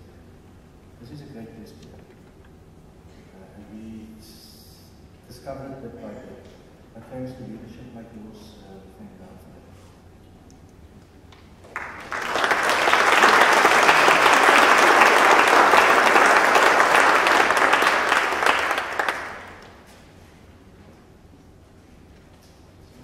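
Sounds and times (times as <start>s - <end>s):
congregation applauding: 11.6s - 19.9s.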